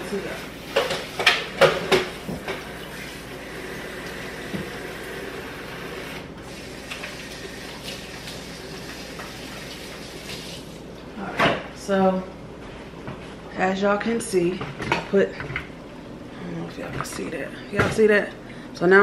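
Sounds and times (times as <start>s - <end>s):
kitchenware clattering: 0.1s - 2.7s
water running from a tap: 2.6s - 10.8s.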